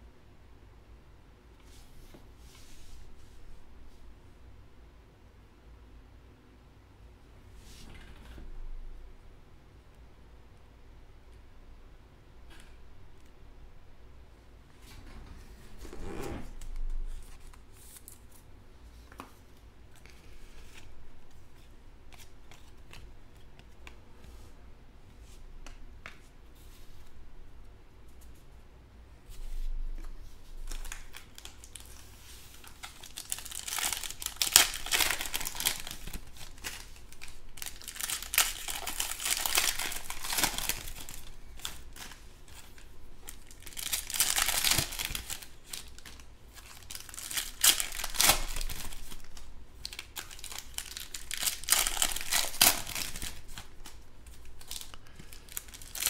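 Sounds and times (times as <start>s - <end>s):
soft handling sounds: 1.5s - 4.2s, 14.6s - 56.0s
foil wrappers tearing and crinkling: 30.6s - 56.0s.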